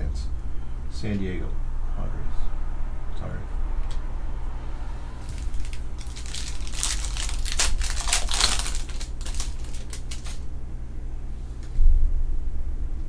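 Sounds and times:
wrapper tearing and crinkling: 0:05.2 - 0:10.4.

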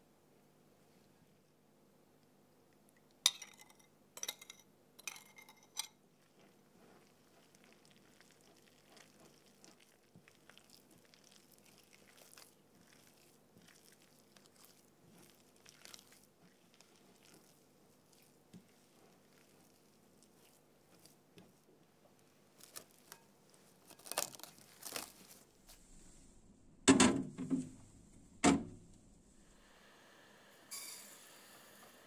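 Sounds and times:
spoon clinking against glass: 0:03.3 - 0:05.9
dough squishing and crumbling: 0:06.0 - 0:25.8.

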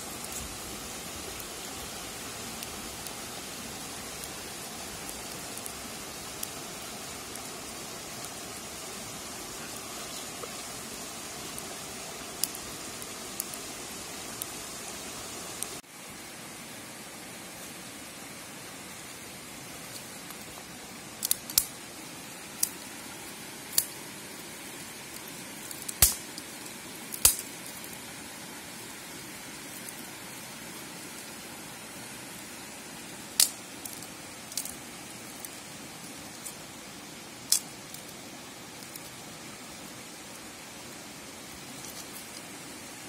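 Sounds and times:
dry sticks snapping: 0:21.2 - 0:21.7, 0:25.7 - 0:26.2, 0:27.2 - 0:27.5, 0:33.4 - 0:34.7.

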